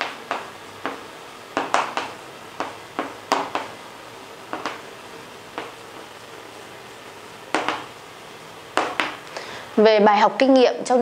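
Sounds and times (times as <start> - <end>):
chalk tapping and scratching on chalkboard: 1.6 - 3.8, 4.5 - 4.8, 7.5 - 7.9, 8.8 - 9.2.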